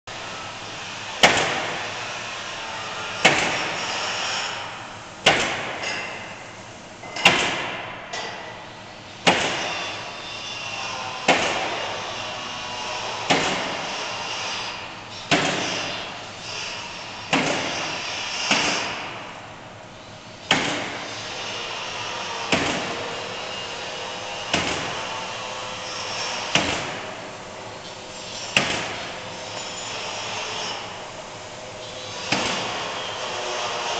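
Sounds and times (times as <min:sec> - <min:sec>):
nailing machine bangs: 0:01.2 - 0:01.8, 0:03.2 - 0:03.9, 0:05.2 - 0:06.0, 0:07.2 - 0:08.0, 0:09.2 - 0:09.8, 0:11.2 - 0:11.8, 0:13.3 - 0:13.8, 0:15.3 - 0:15.9, 0:17.3 - 0:19.3, 0:20.4 - 0:21.0, 0:22.4 - 0:23.2, 0:24.4 - 0:25.2, 0:26.4 - 0:27.2, 0:28.5 - 0:29.8, 0:32.2 - 0:32.9.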